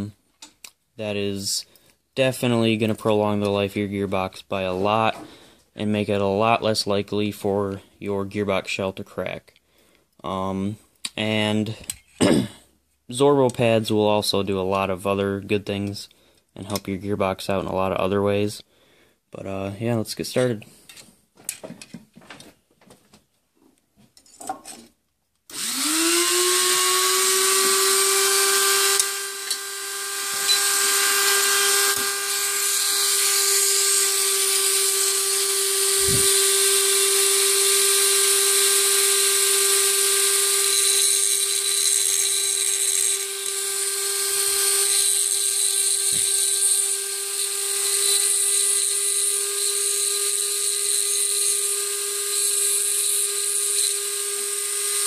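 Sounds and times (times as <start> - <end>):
rotary tool whining and grinding metal: 25.5 - 55.0.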